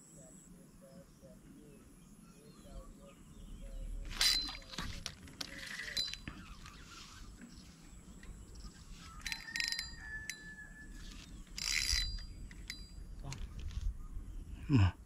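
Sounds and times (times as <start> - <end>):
fishing reel clicking: 4.1 - 4.8, 9.2 - 10.5, 11.4 - 13.0.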